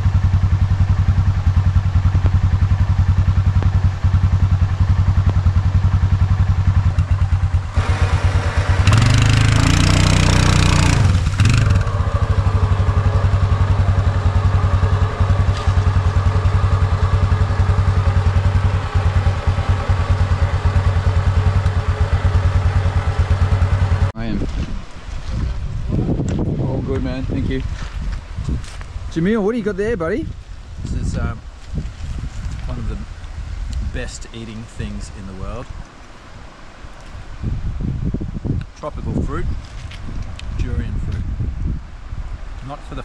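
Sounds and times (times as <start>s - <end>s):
quad bike engine running: 0.0s - 24.2s.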